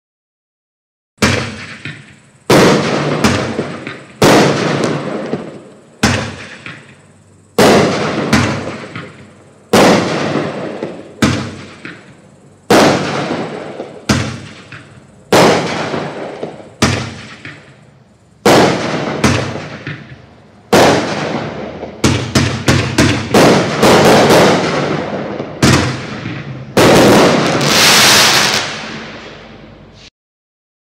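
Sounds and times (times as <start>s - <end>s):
firework cake bangs: 1.2s - 17.8s, 18.4s - 29.4s.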